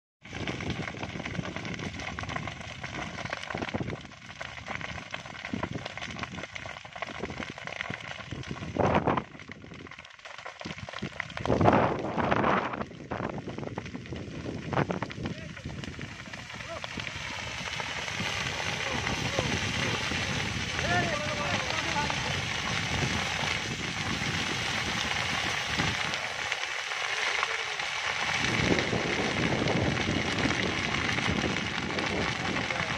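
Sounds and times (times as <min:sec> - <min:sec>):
fire crackling and popping: 0:00.2 - 0:32.9
hiss of burning: 0:10.3 - 0:32.9.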